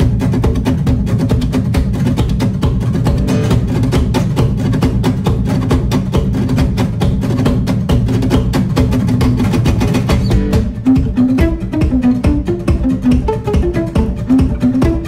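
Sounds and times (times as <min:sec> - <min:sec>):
instrumental music with fast beat: 0:00.0 - 0:15.0
plucked melody: 0:00.0 - 0:15.0
low bass line: 0:02.7 - 0:04.6, 0:10.1 - 0:15.0.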